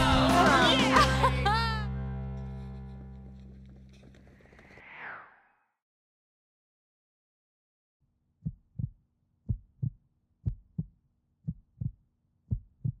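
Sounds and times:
heartbeat thumps: 0:08.4 - 0:13.0.

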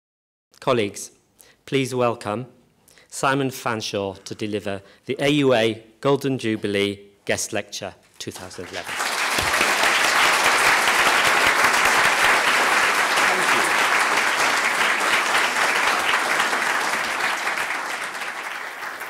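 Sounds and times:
audience applauding: 0:08.4 - 0:19.0.

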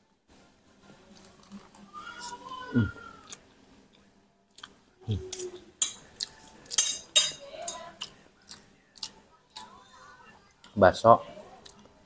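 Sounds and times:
cutlery clinking on a plate: 0:05.3 - 0:07.8.

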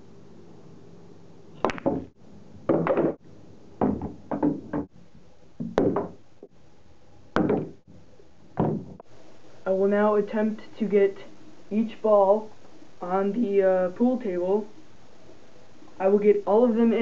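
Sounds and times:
cue striking ball: 0:01.6 - 0:02.1
pool balls knocking: 0:01.6 - 0:03.2, 0:03.8 - 0:05.0, 0:05.6 - 0:06.5, 0:07.3 - 0:07.9, 0:08.5 - 0:09.0.

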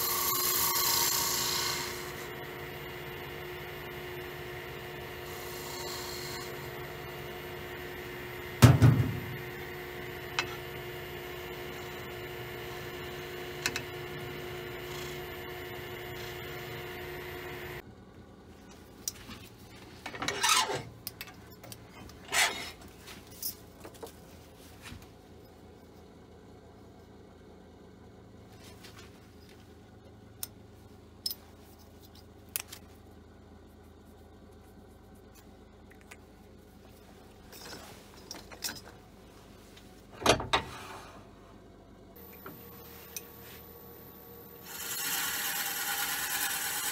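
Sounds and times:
lathe motor humming: 0:00.0 - 0:17.8, 0:44.6 - 0:46.9
hand tools rubbing and scraping: 0:21.9 - 0:23.4.

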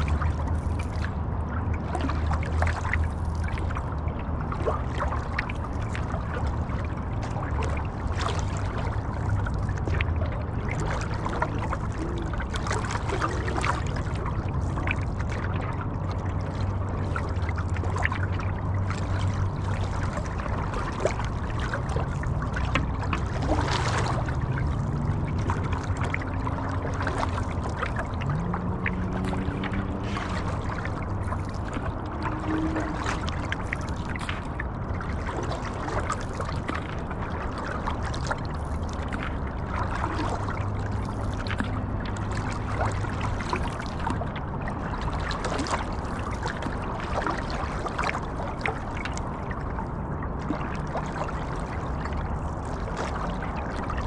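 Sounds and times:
paddle splashing in water: 0:00.0 - 0:54.0
water dripping off paddle: 0:17.1 - 0:44.4.

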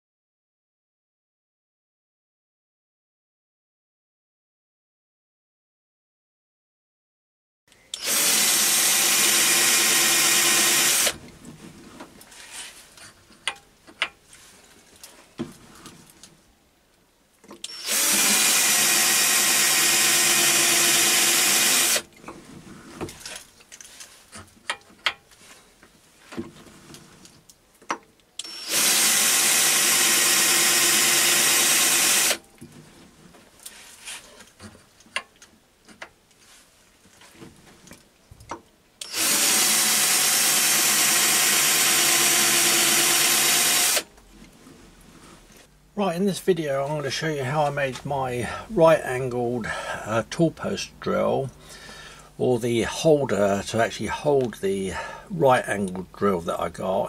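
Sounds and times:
power drill motor whine: 0:07.9 - 0:11.2, 0:17.6 - 0:22.1, 0:28.4 - 0:32.4, 0:39.0 - 0:44.1.

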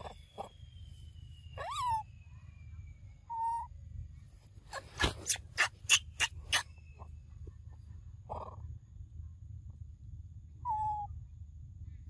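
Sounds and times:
animal whistle-like call: 0:01.4 - 0:02.2
sharp animal calls: 0:04.7 - 0:06.7.

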